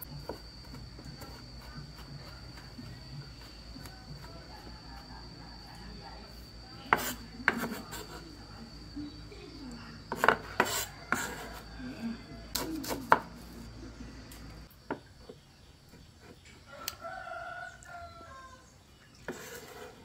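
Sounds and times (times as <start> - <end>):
rooster crowing: 3.1 - 6.0, 10.6 - 12.7, 16.6 - 18.7.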